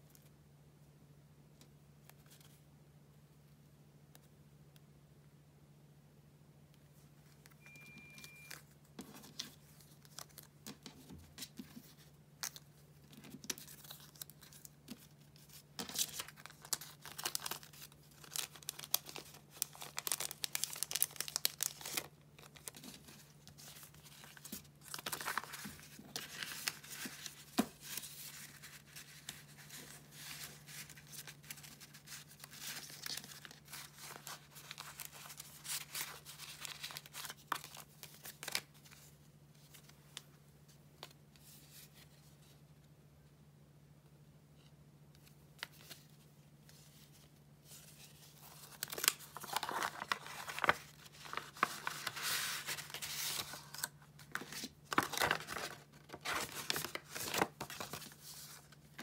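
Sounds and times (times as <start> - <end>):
paper stickers and cards rustling: 7.2 - 40.3, 45.2 - 59.0
cellophane crinkling: 11.8 - 39.0, 47.9 - 59.0.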